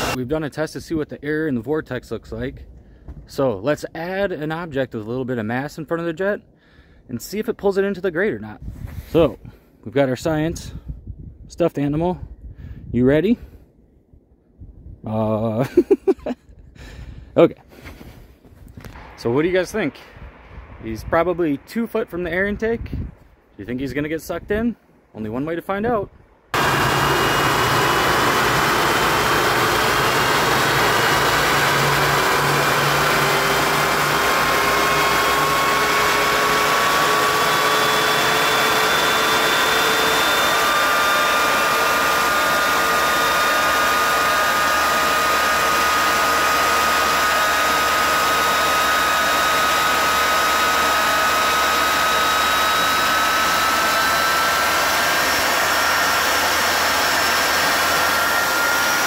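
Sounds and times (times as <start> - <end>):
turbine whine: 0.0 - 0.2, 18.8 - 23.0, 26.4 - 59.0
jet engine air rush: 18.9 - 22.2, 26.6 - 33.6.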